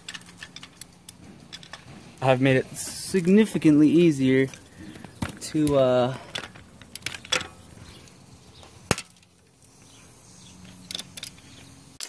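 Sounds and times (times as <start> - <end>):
sensor cracking loose: 4.4 - 8.2.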